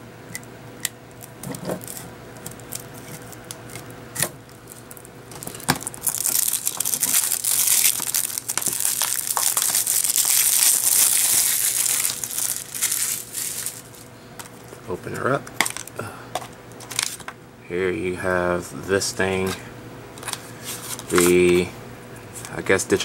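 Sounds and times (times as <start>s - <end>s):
cellophane crinkling: 1.1s - 16.0s, 16.8s - 17.2s.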